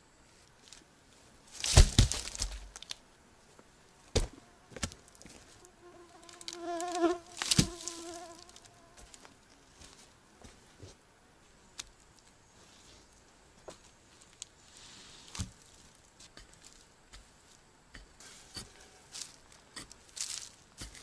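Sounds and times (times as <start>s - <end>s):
footsteps crackling on twigs: 1.5s - 3.0s, 4.1s - 10.9s, 13.1s - 14.6s, 15.3s - 21.0s
flying insect buzzing: 5.6s - 9.2s.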